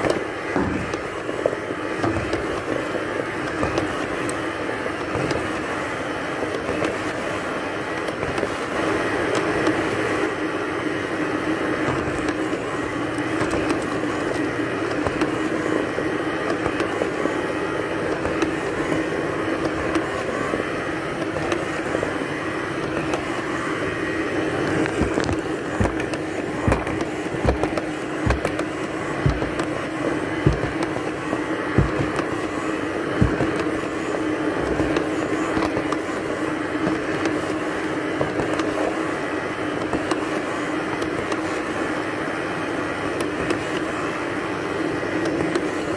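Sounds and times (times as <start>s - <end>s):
robot vacuum cleaner humming: 0.0s - 45.9s.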